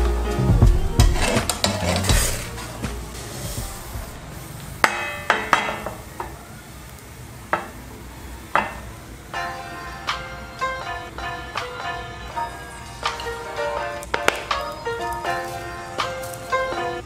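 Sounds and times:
soft background music: 0.0 - 4.3, 9.3 - 17.0
frying pan clanking on grate: 4.8 - 6.4, 8.6 - 8.9.

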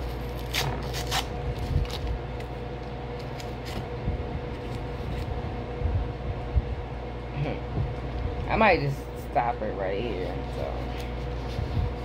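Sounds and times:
paper wrapping tearing: 0.0 - 2.1
low steady hum: 0.0 - 12.0.

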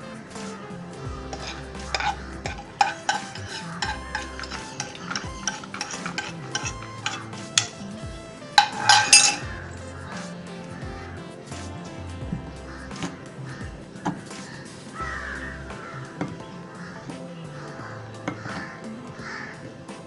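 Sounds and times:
spoon scraping a pan: 1.2 - 10.4.

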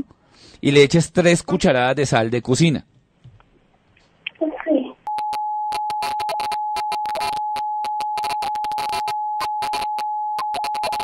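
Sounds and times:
crackling static: 4.2 - 11.0
telephone line tone: 5.1 - 11.0.

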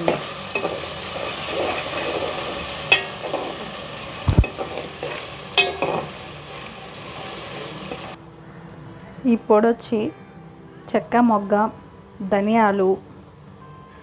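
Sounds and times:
masala sizzling in pan: 0.0 - 8.2
spoon scraping and knocking pan: 0.0 - 8.2.

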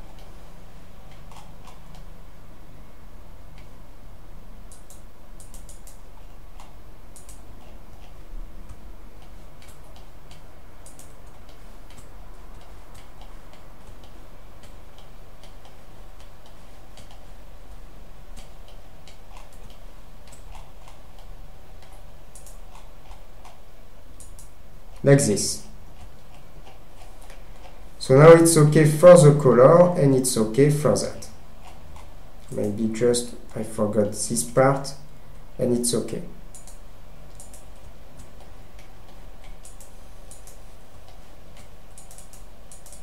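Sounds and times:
steady low hum: 0.0 - 43.0
computer mouse clicking: 1.1 - 2.1, 4.7 - 17.4, 18.3 - 25.0, 25.9 - 27.8, 31.6 - 32.8, 36.5 - 43.0.

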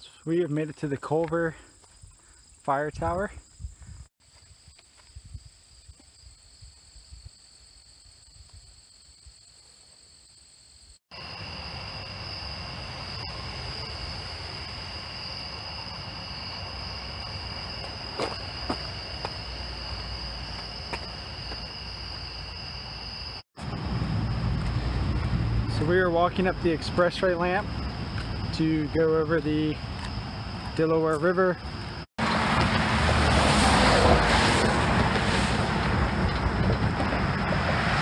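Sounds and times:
insects trilling: 1.4 - 32.5
low rumble: 23.6 - 26.9.

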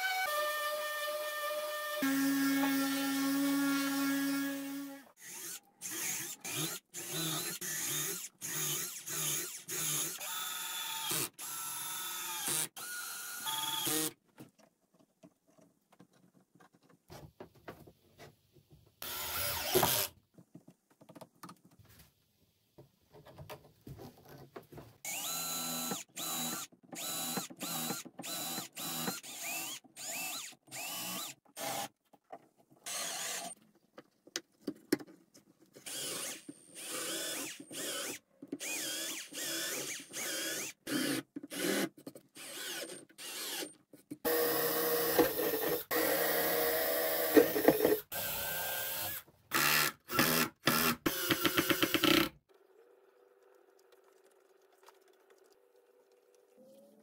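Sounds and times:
drill driving screws into plywood: 0.0 - 14.2, 19.0 - 20.2, 25.1 - 31.9, 32.8 - 33.6, 35.8 - 52.4.

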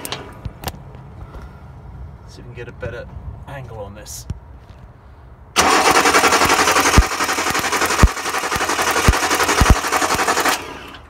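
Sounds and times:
starter motor cranking engine: 5.6 - 11.0.

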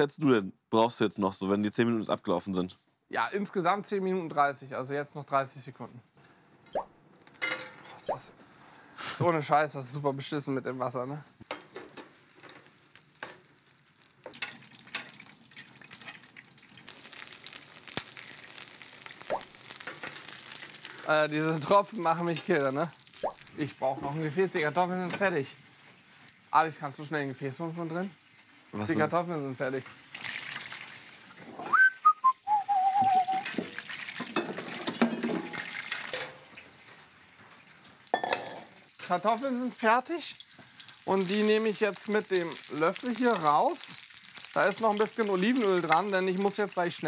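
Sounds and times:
hot oil sizzling and crackling: 7.2 - 31.7, 32.3 - 47.0
pans and utensils clattering: 7.4 - 8.1, 11.5 - 13.5, 14.2 - 16.9, 33.4 - 37.2, 38.1 - 38.8
person whistling a tune: 31.7 - 33.4.

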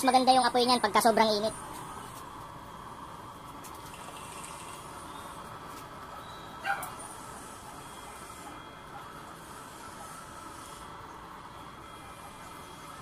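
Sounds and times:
blower whine and rushing air: 0.0 - 13.0
dog bark: 6.6 - 7.0.

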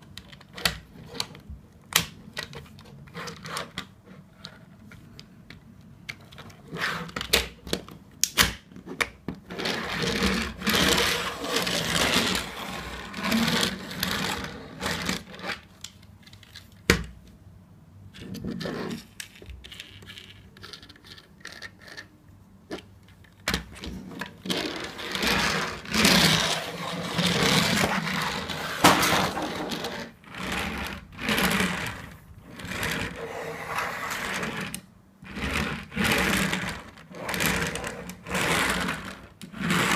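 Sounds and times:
plastic parts rubbing and sliding: 6.2 - 7.8, 8.8 - 16.9, 22.7 - 39.9
toy car pushed along tabletop: 6.6 - 7.4, 9.4 - 15.7, 23.8 - 39.9.

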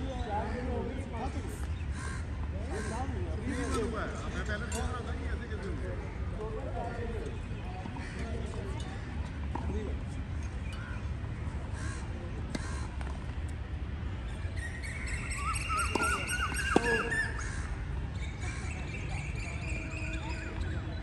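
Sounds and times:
birds chirping and squawking: 14.3 - 21.0.

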